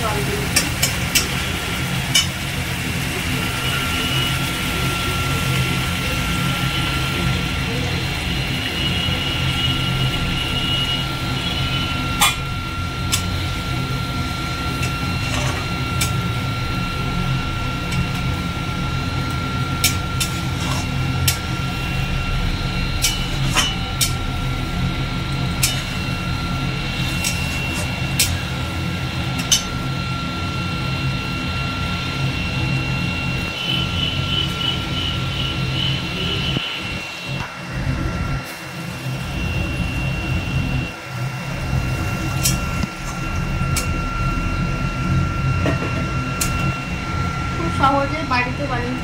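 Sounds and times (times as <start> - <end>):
steady low hum: 0.0 - 49.0
thin high whine: 0.0 - 49.0
metal spatula scraping a pan: 14.8 - 16.1, 19.8 - 21.4, 25.6 - 26.1.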